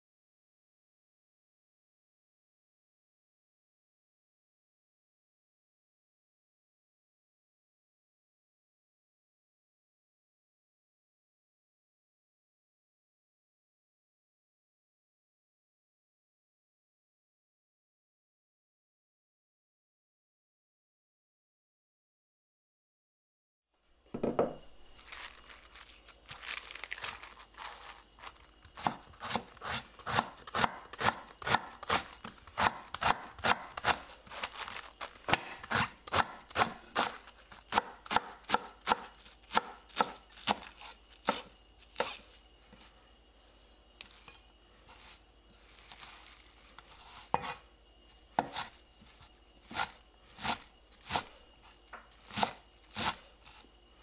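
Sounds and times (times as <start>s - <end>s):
knife chopping cabbage on wood: 26.3s - 42.4s, 44.0s - 47.7s, 48.3s - 53.7s.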